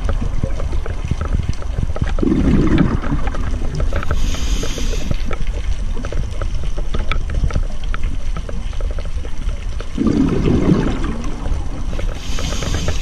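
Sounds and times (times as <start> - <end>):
faint clicks: 0.0 - 10.0, 10.8 - 13.0
low rumble of water: 0.0 - 13.0
gush of bubbles: 2.1 - 5.1, 9.9 - 13.0
scuba regulator exhaling: 2.2 - 5.4, 12.2 - 13.0.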